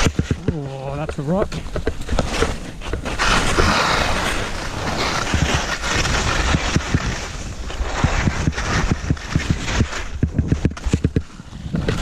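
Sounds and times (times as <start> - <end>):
skis knocking and scraping: 0.0 - 12.0
wind rushing across microphone: 0.0 - 12.0.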